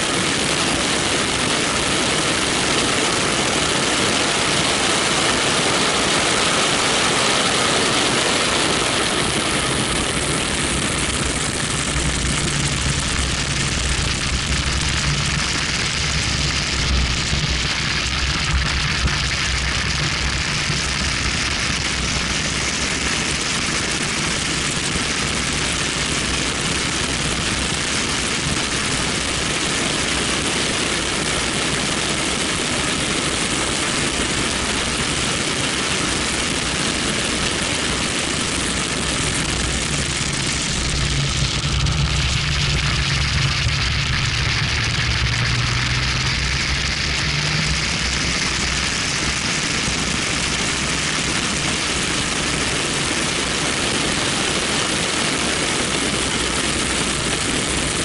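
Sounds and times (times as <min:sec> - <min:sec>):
wind on microphone: 0:00.0 - 0:58.0
car engine: 0:09.0 - 0:23.4, 0:38.0 - 0:54.0.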